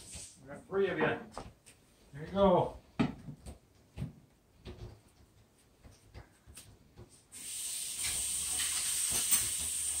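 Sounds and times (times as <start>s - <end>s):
steady hiss: 7.2s - 10.0s.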